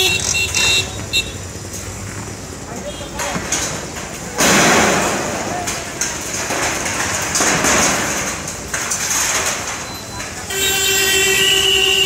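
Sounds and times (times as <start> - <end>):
concrete debris crumbling and falling: 3.1 - 11.6.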